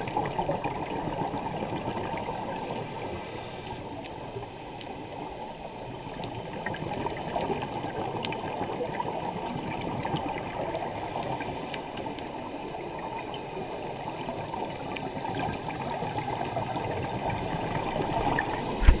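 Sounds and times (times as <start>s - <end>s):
small clicks and pops: 5.8s - 7.5s
underwater regulator bubbles: 15.1s - 19.0s.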